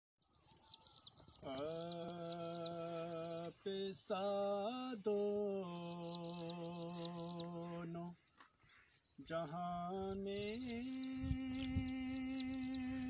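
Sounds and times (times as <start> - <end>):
man humming a drone: 10.3 - 13.0.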